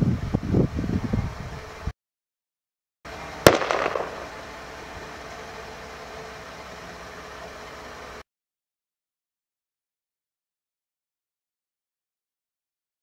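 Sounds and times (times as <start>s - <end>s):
faint outdoor hiss: 3.1s - 8.2s
loud bang with echo: 3.5s - 4.3s.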